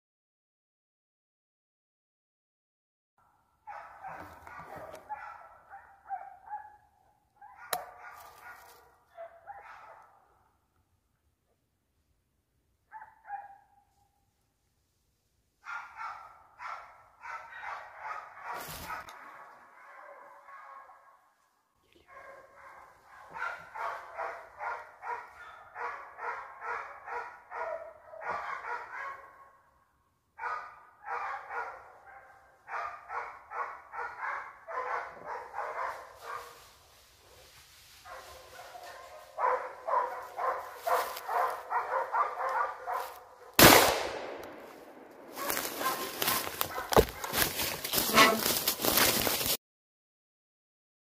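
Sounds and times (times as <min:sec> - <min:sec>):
hunting dogs baying: 0:22.2 - 0:29.3, 0:30.4 - 0:36.6, 0:38.1 - 0:43.5, 0:45.4 - 0:48.6
loud gunshot: 0:43.6 - 0:45.4.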